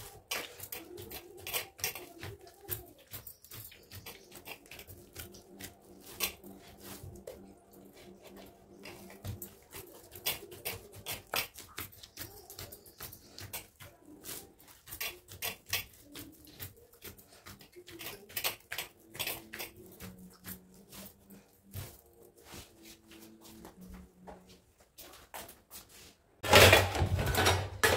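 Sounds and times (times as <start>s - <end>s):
dough pats and squelches: 0.0s - 26.2s.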